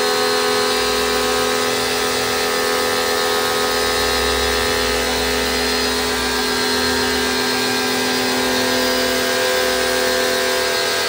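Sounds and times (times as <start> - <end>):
pressure washer motor humming: 0.0 - 11.0.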